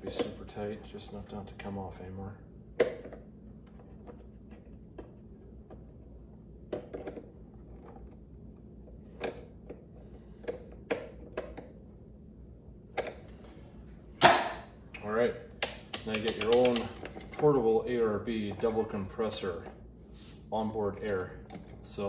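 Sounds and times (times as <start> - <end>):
pliers clicking on metal: 15.9 - 16.9.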